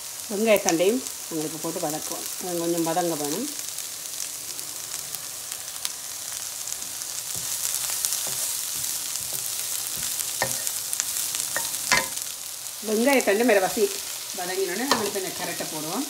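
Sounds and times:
oil sizzling in a wok: 0:00.0 - 0:16.0
wooden spatula scraping: 0:07.2 - 0:12.2
spatula knocking on pan: 0:08.2 - 0:10.8, 0:11.5 - 0:12.2, 0:14.9 - 0:15.2.

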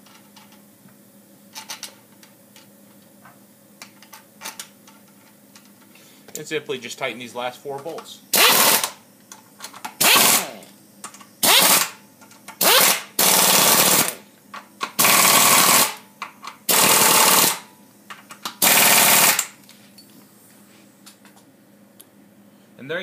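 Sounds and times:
pneumatic wrench bursts: 0:08.3 - 0:09.0, 0:10.0 - 0:10.7, 0:11.4 - 0:12.0, 0:12.6 - 0:14.2, 0:15.0 - 0:16.0, 0:16.7 - 0:17.6, 0:18.6 - 0:19.5.

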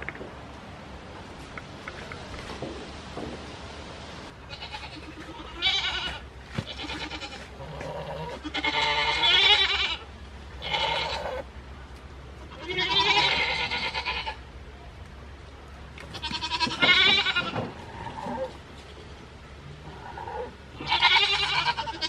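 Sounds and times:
goat bleating: 0:04.4 - 0:11.5, 0:12.4 - 0:14.4, 0:16.0 - 0:22.0.

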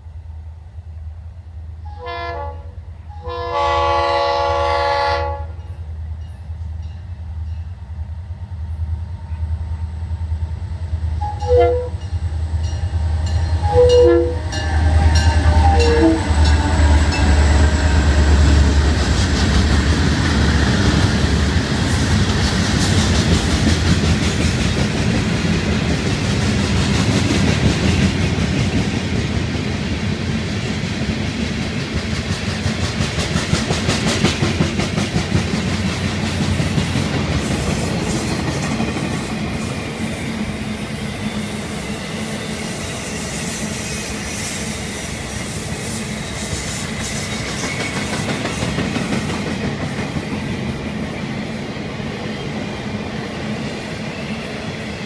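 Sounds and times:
train horn blasts: 0:01.8 - 0:05.8, 0:11.2 - 0:12.1, 0:13.5 - 0:18.4
locomotive engines rumbling: 0:09.3 - 0:23.6.

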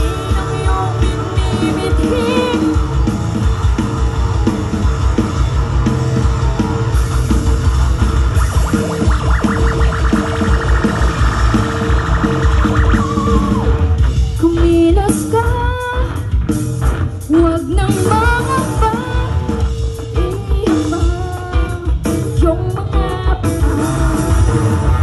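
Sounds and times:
woman singing lead: 0:00.0 - 0:03.0, 0:13.0 - 0:16.4, 0:17.2 - 0:24.6
rock band playing: 0:00.0 - 0:25.0.

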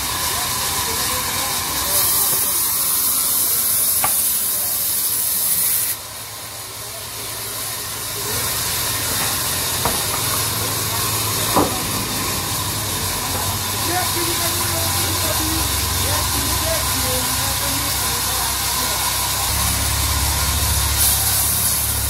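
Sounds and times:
band saw cutting wood hiss: 0:00.0 - 0:22.0
band saw humming: 0:00.0 - 0:22.0
wood knocking: 0:11.5 - 0:12.9.

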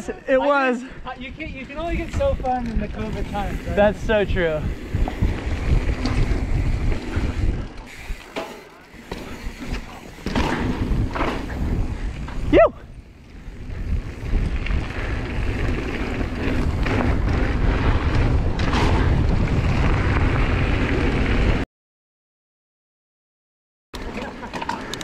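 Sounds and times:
wind buffeting microphone: 0:00.8 - 0:08.4, 0:09.0 - 0:21.6
tyres rumbling on dirt: 0:01.8 - 0:21.6.

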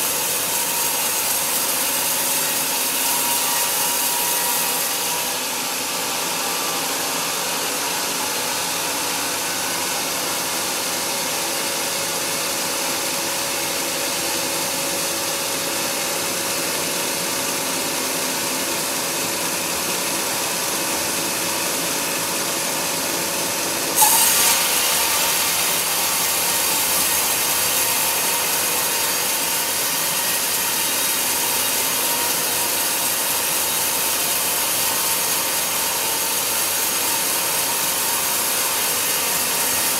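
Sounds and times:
band saw blade sawing log: 0:00.0 - 0:10.5, 0:23.9 - 0:39.9.

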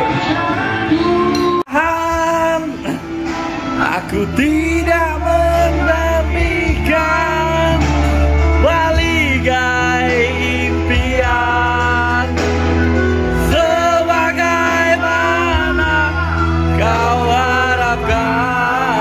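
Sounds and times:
backing music track: 0:00.0 - 0:19.0
man singing into microphone: 0:00.0 - 0:19.0.

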